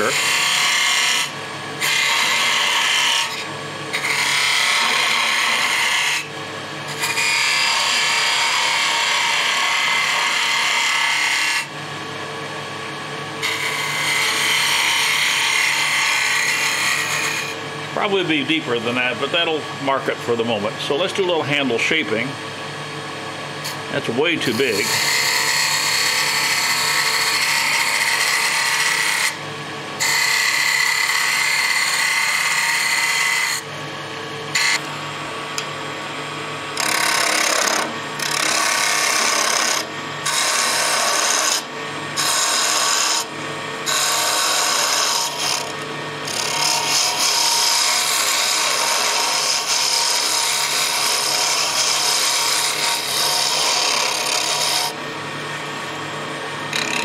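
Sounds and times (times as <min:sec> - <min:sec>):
wood lathe humming: 0:00.0 - 0:57.0
gouge cutting wood hissing: 0:24.4 - 0:29.4.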